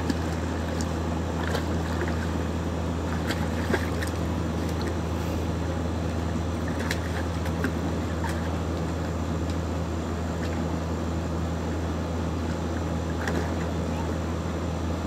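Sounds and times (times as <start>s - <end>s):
puppy splashing in water: 0.0s - 5.1s, 6.5s - 9.2s, 12.4s - 14.2s
steady low hum: 0.0s - 15.0s.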